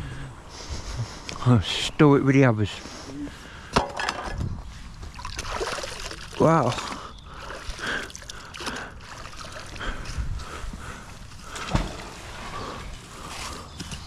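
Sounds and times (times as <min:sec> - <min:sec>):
water dripping and sloshing: 0:05.1 - 0:10.2.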